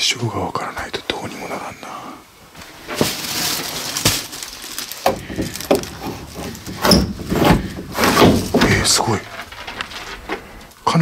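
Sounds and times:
wooden furniture scraping: 2.6s - 10.8s
wooden knocks and rattles: 2.8s - 10.7s.

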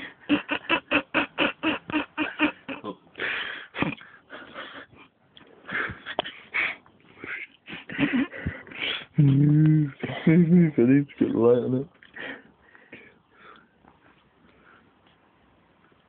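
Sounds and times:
person laughing wheezily: 0.0s - 5.0s, 5.7s - 10.7s.

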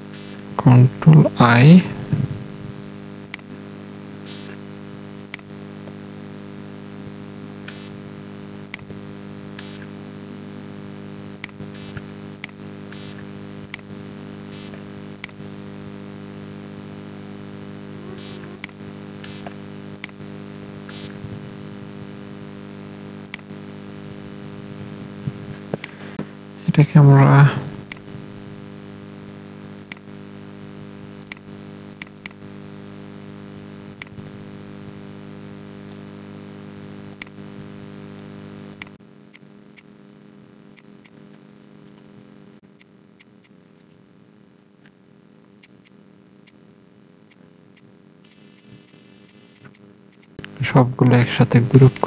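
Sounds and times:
electrical mains hum: 0.0s - 52.0s
computer mouse clicking: 11.4s - 12.6s, 32.0s - 32.4s, 43.2s - 43.5s, 45.6s - 46.0s, 48.3s - 50.5s.

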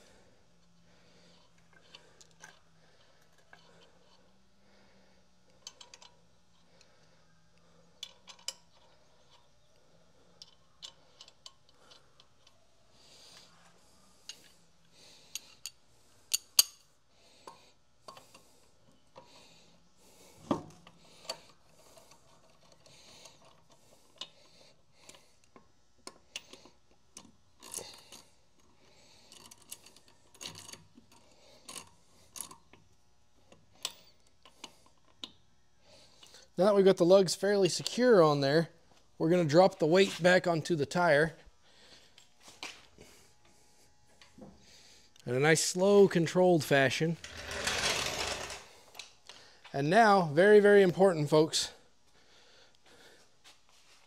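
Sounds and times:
metal lug nuts clicking and clinking: 5.5s - 6.2s, 8.0s - 9.5s, 10.4s - 12.6s.

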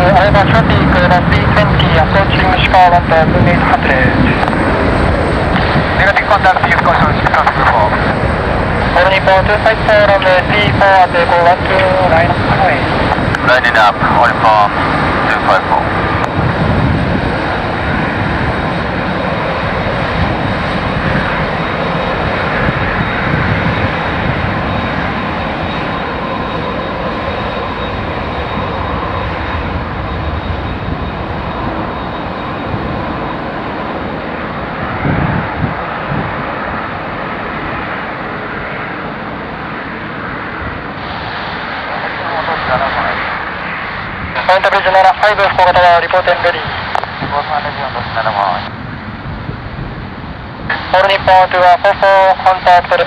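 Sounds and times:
jet engines running: 0.0s - 53.0s.

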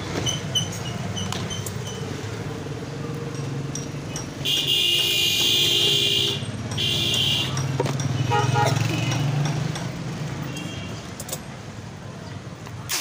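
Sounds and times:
traffic rumble: 0.0s - 13.0s
loud buzzing horn: 4.4s - 7.5s.

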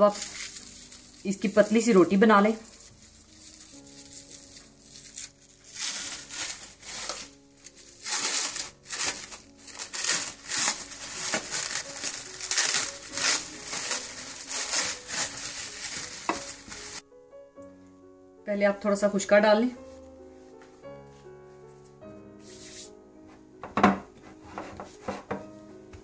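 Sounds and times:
cling film crinkling: 0.0s - 17.0s.

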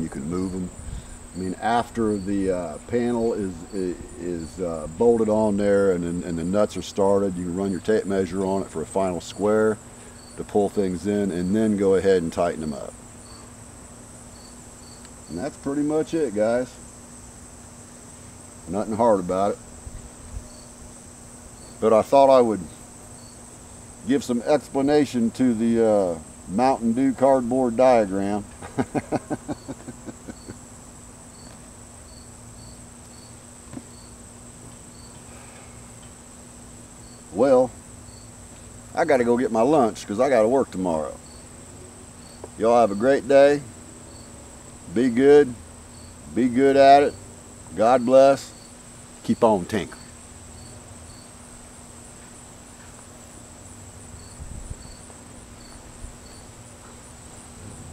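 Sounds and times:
crickets chirping: 0.0s - 57.9s
insects trilling: 0.0s - 57.9s
low bumps: 57.3s - 57.9s.

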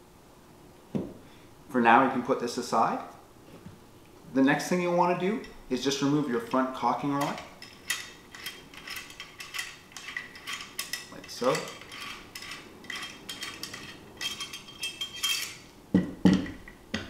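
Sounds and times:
small metallic clicks and scrapes: 7.2s - 15.6s.

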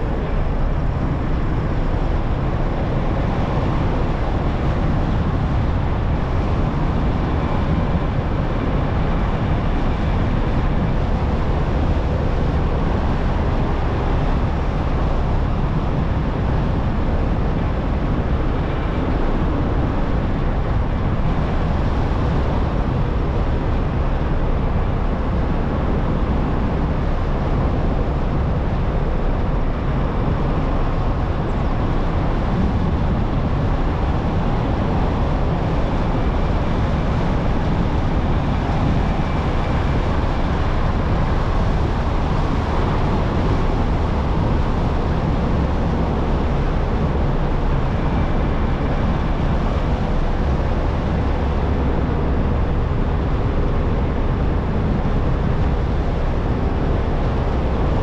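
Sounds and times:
car road and wind rumble: 0.0s - 58.0s.

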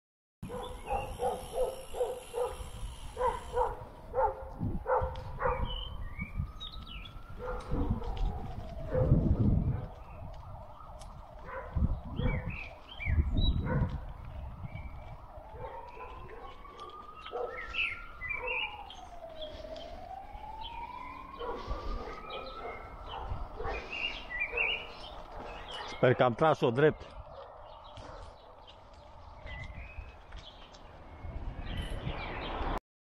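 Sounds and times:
birds chirping: 0.4s - 7.8s, 11.5s - 32.8s
bicycle rumbling over cobblestones: 0.5s - 20.8s, 27.2s - 32.8s
emergency vehicle siren wailing: 5.1s - 26.2s.

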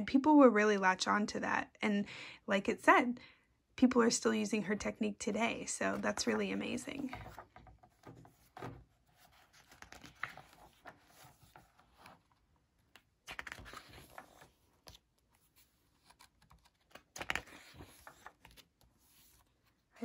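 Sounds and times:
paper pages turning: 5.9s - 20.0s.

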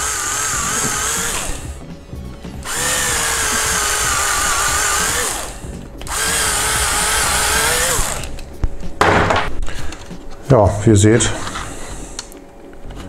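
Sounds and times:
electric screwdriver whine: 0.0s - 1.8s, 2.6s - 8.4s.

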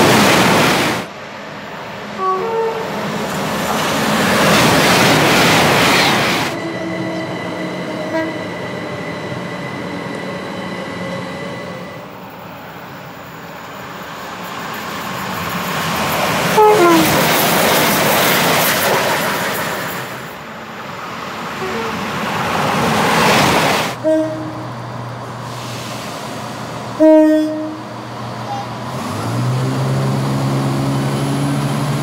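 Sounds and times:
train passing at speed: 0.0s - 32.0s
train horn blast: 2.2s - 2.9s, 6.6s - 8.5s, 16.5s - 17.2s, 24.0s - 24.7s, 27.0s - 28.7s
two-note train horn: 2.2s - 2.9s, 7.9s - 8.5s, 16.6s - 17.2s, 24.0s - 24.7s, 27.0s - 28.7s.

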